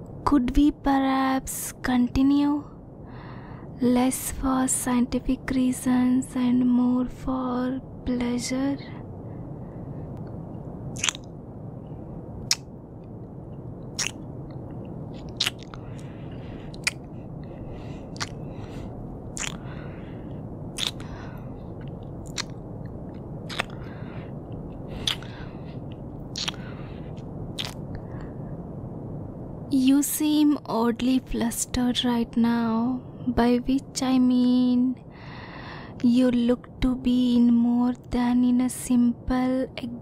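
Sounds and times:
low background hum: 0.0 - 40.0
wet kissing mouth smacks: 11.0 - 11.3, 14.0 - 14.2, 15.2 - 15.8, 18.2 - 18.4, 19.4 - 19.6, 20.8 - 21.1, 22.3 - 22.6, 23.5 - 23.8, 25.0 - 25.3, 26.4 - 26.6, 27.6 - 27.8.

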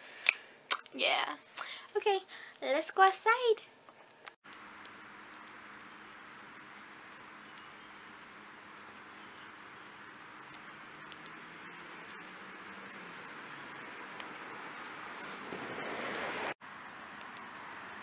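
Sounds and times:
outdoor background hiss: 0.0 - 18.0
guinea pig chewing grass: 4.5 - 13.9, 14.7 - 18.0.

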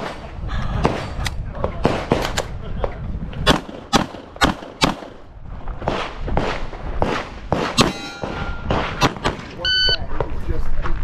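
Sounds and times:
handgun shots: 3.5 - 5.1, 5.9 - 9.4
short ringing tone: 7.9 - 8.7.

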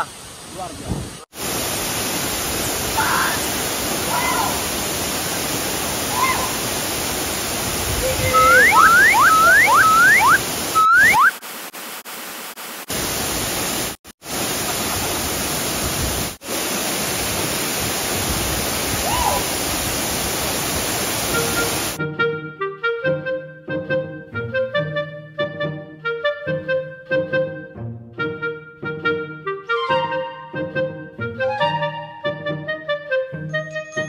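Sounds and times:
waterfall crashing into pool: 0.0 - 22.0
rising whistle-like notes: 8.2 - 11.4.

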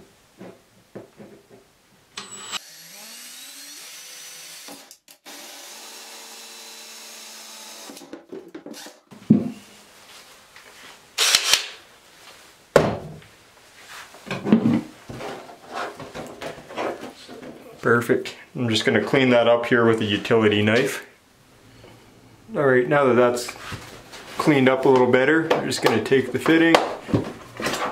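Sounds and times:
drill motor whining: 2.2 - 8.0.

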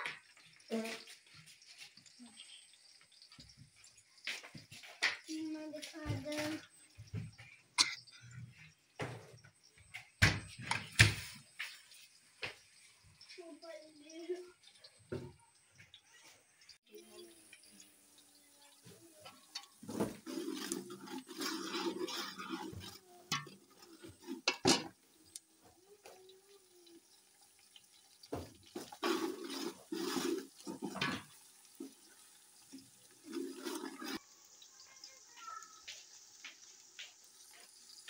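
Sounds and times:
onions sizzling in oil: 0.0 - 9.9, 10.9 - 15.3, 16.0 - 38.0
spoon scraping pot: 18.8 - 25.4, 28.7 - 32.0.

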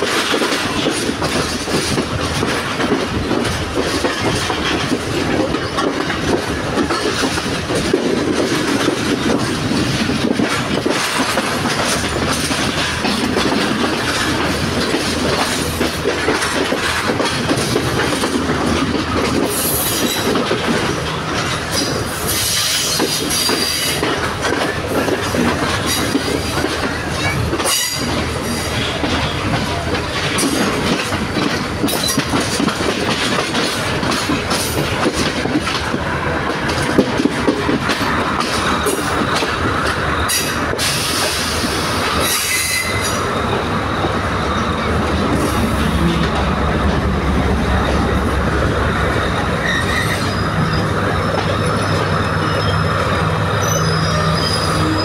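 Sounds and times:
train wheels clattering over rails: 0.0 - 55.0
train wheels squealing: 21.8 - 24.0, 27.1 - 29.5, 40.2 - 43.6, 44.3 - 45.9, 49.2 - 55.0.

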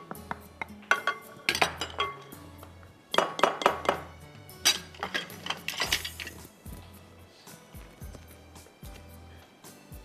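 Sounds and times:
background music with bass: 3.7 - 10.0.

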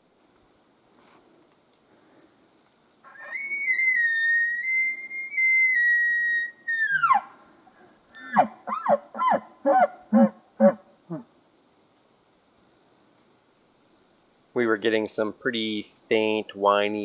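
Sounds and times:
high whistling elk bugle call: 3.0 - 7.4, 8.2 - 11.2.

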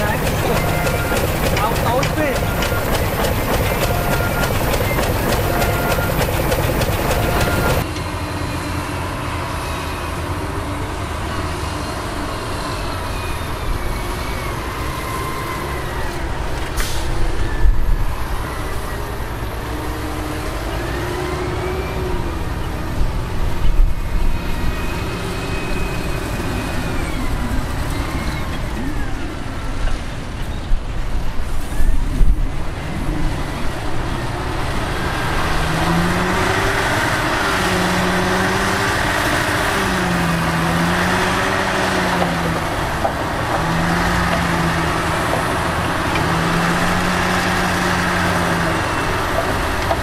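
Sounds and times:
rapid clattering: 0.0 - 7.8
dump truck diesel engine rumbling: 0.0 - 50.0.

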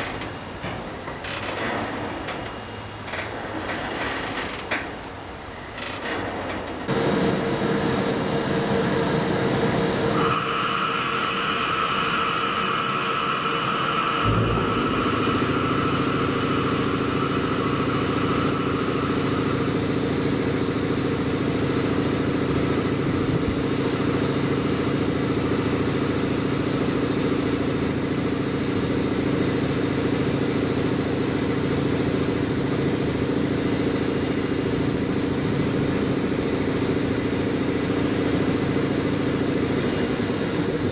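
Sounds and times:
machinery humming with whining tones: 0.0 - 40.9
deep steady hum: 11.0 - 24.9
mechanical thump: 14.2 - 18.8.

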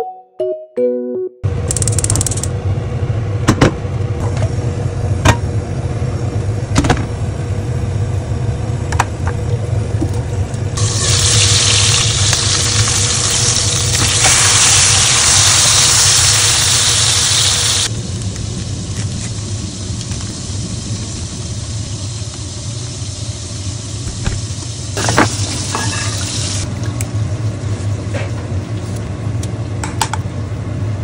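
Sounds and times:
steady low hum: 1.4 - 31.0
sharp clicks: 1.7 - 2.5
fish sizzling in hot oil: 10.8 - 26.7.

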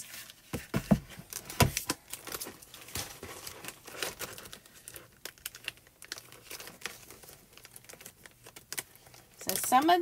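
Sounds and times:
packaging crinkling and rustling: 0.0 - 10.0.

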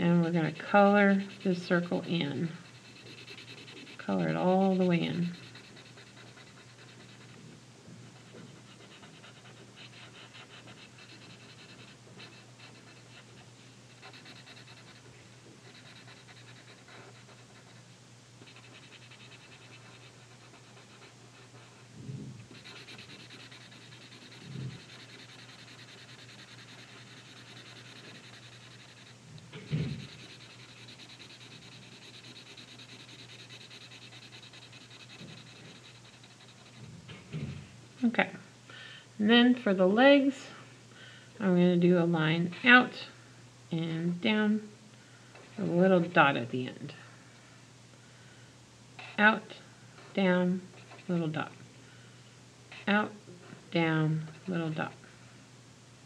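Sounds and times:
marker scribbling on paper: 0.3 - 7.4, 8.2 - 13.4, 14.0 - 15.0, 15.6 - 17.8, 18.4 - 21.8, 22.5 - 36.8.

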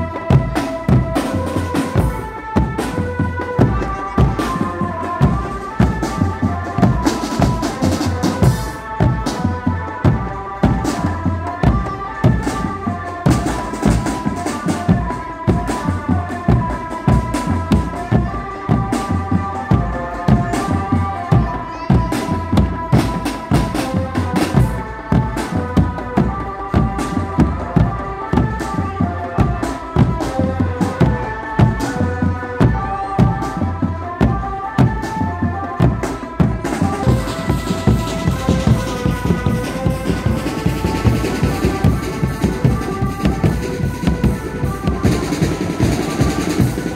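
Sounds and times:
high melody line: 0.0 - 46.9
snare and tom drums: 0.0 - 46.9
bass drums beaten: 34.2 - 46.9
cymbals: 35.8 - 46.9.

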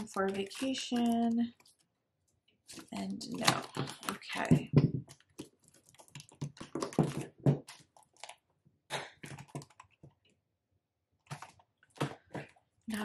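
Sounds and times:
plastic binder clicks and rustling: 2.7 - 8.4, 9.2 - 10.4, 11.2 - 12.6.

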